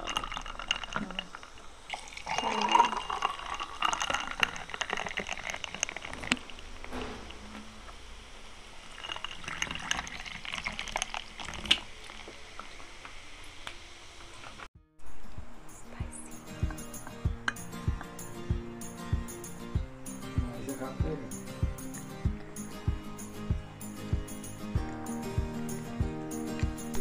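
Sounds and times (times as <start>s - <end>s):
cola pouring and fizzing: 0.0s - 14.7s.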